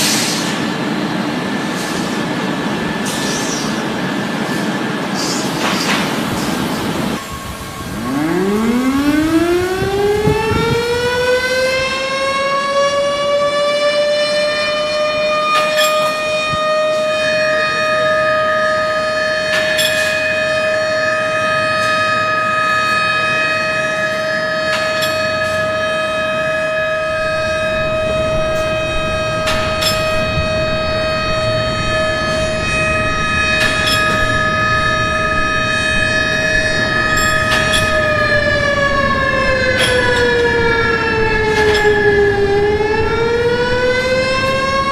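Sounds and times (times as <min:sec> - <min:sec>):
siren wailing: 0:02.8 - 0:44.9.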